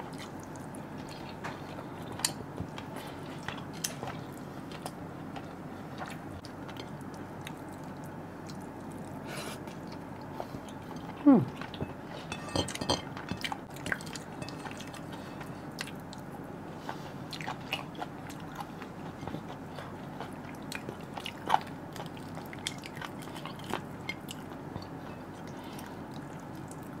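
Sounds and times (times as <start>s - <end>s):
person chewing: 17.0s - 27.0s.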